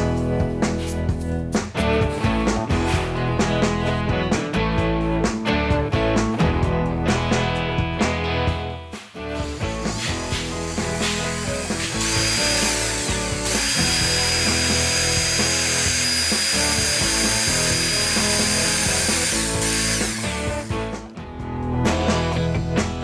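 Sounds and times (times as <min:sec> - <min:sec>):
background music: 0:00.0 - 0:23.0
cordless drill whining into wood: 0:09.4 - 0:20.8.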